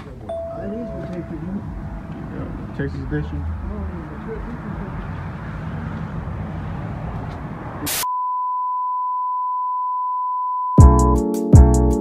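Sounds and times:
low background rumble: 0.4s - 5.0s.

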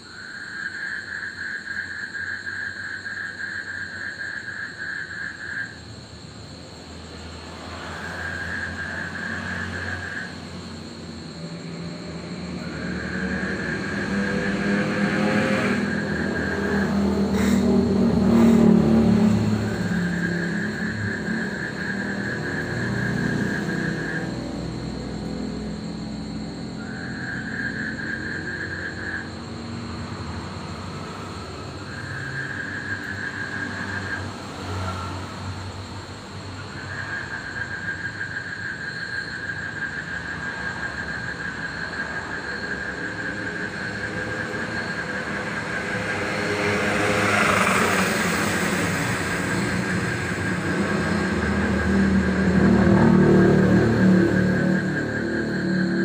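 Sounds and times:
frogs trilling: 0.0s - 56.0s
passing vehicle: 0.5s - 56.0s
steady high drone: 11.0s - 25.1s.

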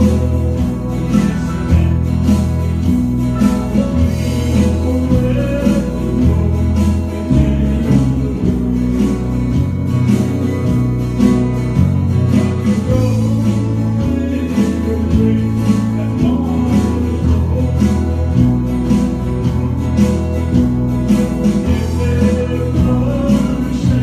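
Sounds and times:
man singing gospel song: 0.0s - 9.5s, 12.3s - 19.1s, 21.4s - 24.0s
low bass notes: 0.0s - 24.0s
strummed guitar: 0.0s - 24.0s.

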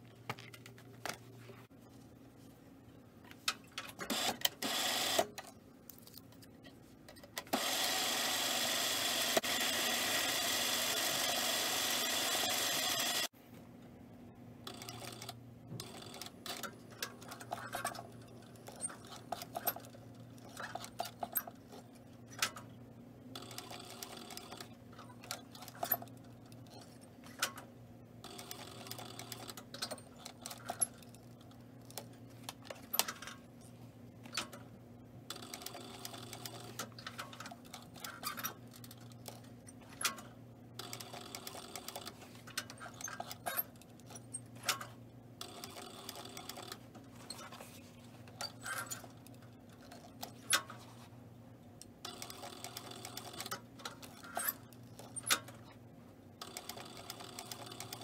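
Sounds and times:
sewing machine motor hum: 4.1s - 5.3s, 7.5s - 13.3s.

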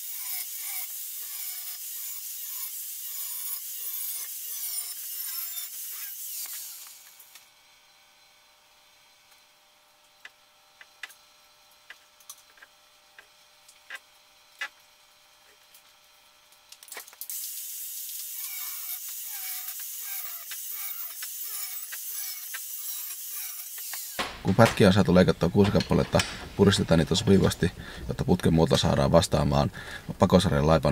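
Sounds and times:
angle grinder cutting steel pipe: 0.0s - 7.4s, 17.3s - 28.2s.

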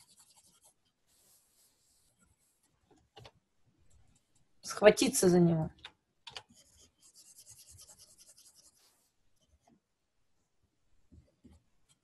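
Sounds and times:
stylus scratching on tablet: 0.0s - 2.7s, 6.4s - 9.1s.

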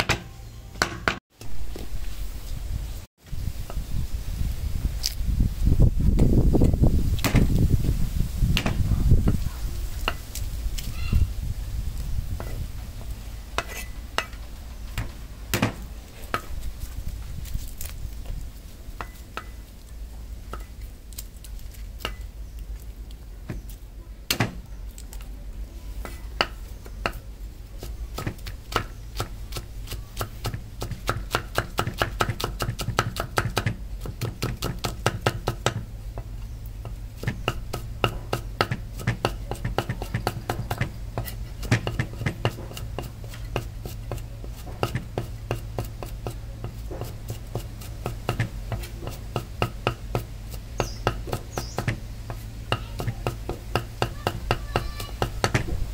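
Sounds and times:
knife chopping on cutting board: 27.8s - 35.8s, 37.2s - 55.7s.

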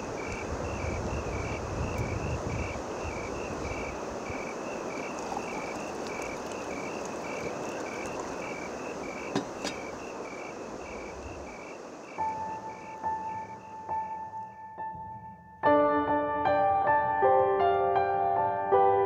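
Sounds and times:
outdoor hiss: 0.0s - 14.5s.

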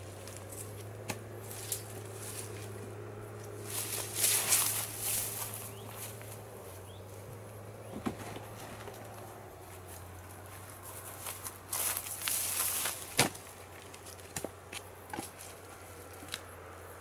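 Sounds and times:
footsteps through long grass: 0.0s - 7.6s, 8.9s - 16.4s
low steady hum: 0.0s - 17.0s
wood knocking on logs: 7.8s - 9.2s, 13.1s - 15.4s.

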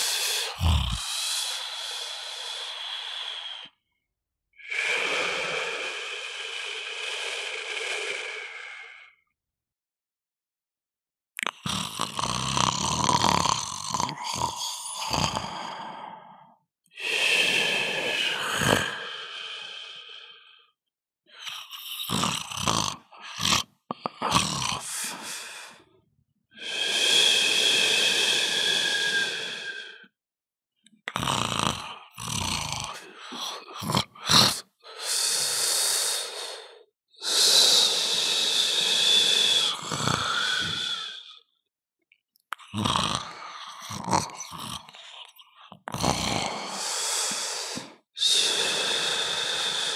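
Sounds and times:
short broken breaths: 0.0s - 3.4s
person snoring loudly: 0.0s - 3.7s, 11.4s - 16.3s, 17.0s - 19.6s, 21.4s - 25.8s, 26.6s - 29.9s, 31.1s - 36.6s, 37.2s - 41.4s, 42.6s - 45.1s, 45.8s - 49.9s.

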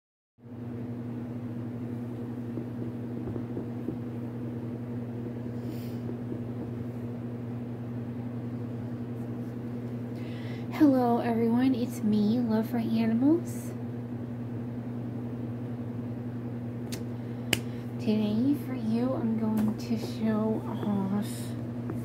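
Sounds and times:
low machine hum: 0.4s - 22.0s.

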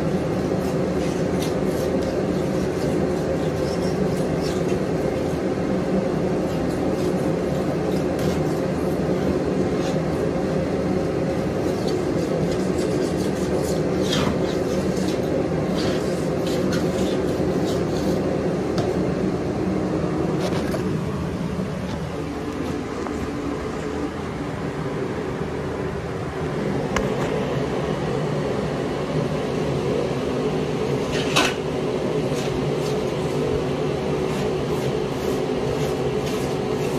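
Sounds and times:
hand scraper scraping: 0.0s - 5.4s, 6.3s - 10.3s, 11.2s - 18.3s, 32.2s - 33.5s, 34.1s - 36.9s.

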